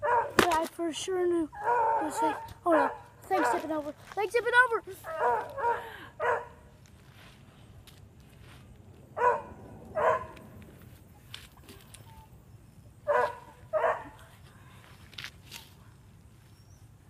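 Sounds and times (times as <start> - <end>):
dog barking: 0.0 - 0.4, 1.6 - 3.6, 5.0 - 6.6, 9.2 - 10.4, 13.1 - 14.2.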